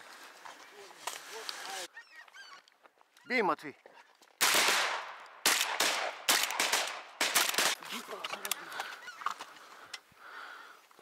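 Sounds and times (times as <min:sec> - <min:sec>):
shotgun shots with echo: 0:04.4 - 0:07.8.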